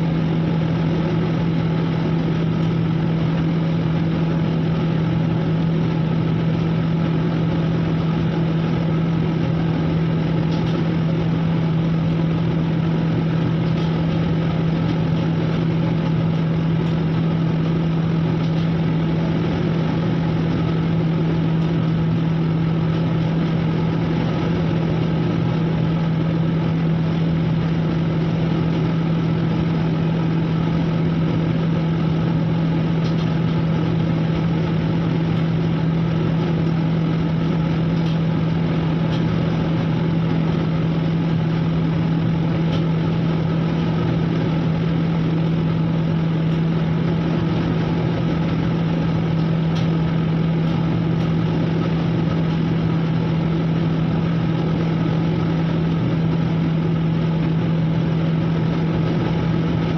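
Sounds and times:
ship machinery drone: 0:00.0 - 0:59.9.

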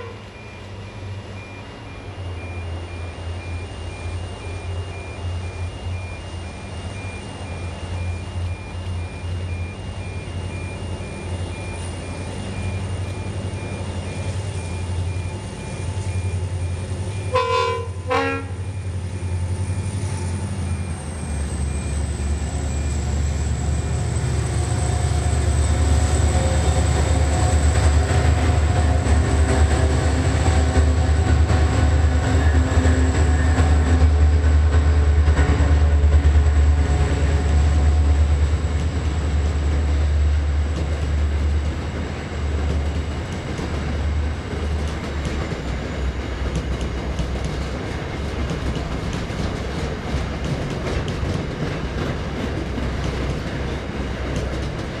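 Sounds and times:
train horn blasts: 0:00.0 - 0:00.3, 0:17.3 - 0:18.7
locomotive engines rumbling: 0:00.0 - 0:55.0.

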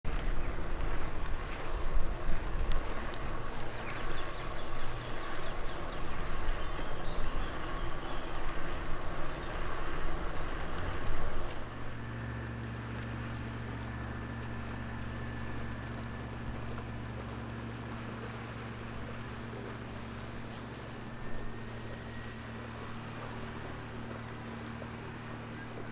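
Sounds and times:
bike rattles and clicks: 0:00.1 - 0:11.9
bicycle tyres rolling on asphalt: 0:00.1 - 0:25.9
steady low hum: 0:00.1 - 0:25.9.

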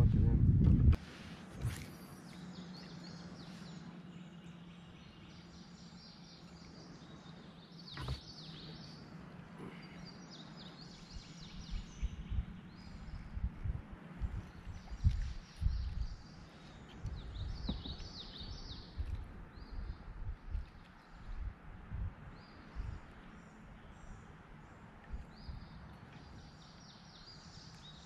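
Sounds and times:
faint steady low hum: 0:00.0 - 0:28.0
birds chirping and singing: 0:01.7 - 0:21.5, 0:22.3 - 0:28.0
soft low knocks: 0:17.1 - 0:18.1.

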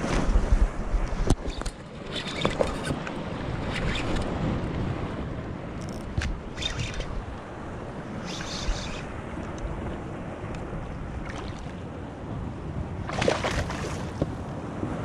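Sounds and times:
wind rumble on microphone: 0:00.0 - 0:15.0
fish splashing in water: 0:13.1 - 0:14.2.

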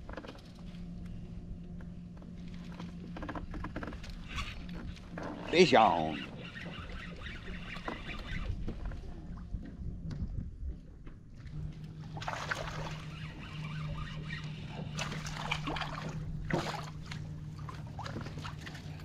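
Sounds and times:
steady low hum: 0:00.0 - 0:19.0
fish splashing at water surface: 0:12.2 - 0:13.0.

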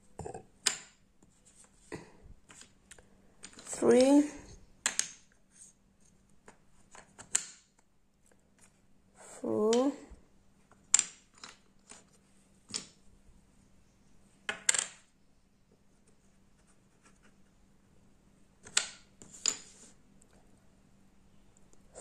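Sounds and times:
wooden puzzle pieces clacking: 0:02.4 - 0:05.3, 0:06.4 - 0:07.7, 0:10.8 - 0:13.0, 0:18.6 - 0:19.8.

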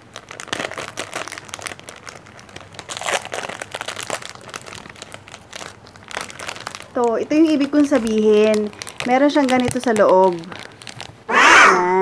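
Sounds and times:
plastic wrapper crinkling: 0:00.0 - 0:11.3.

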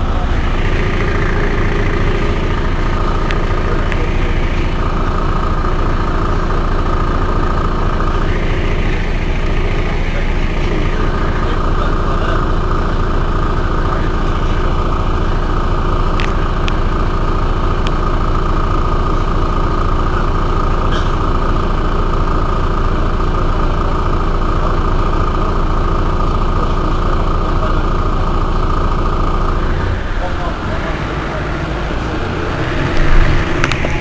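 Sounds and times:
thin steady whine: 0:00.0 - 0:20.8
bus engine idling: 0:00.0 - 0:34.0.

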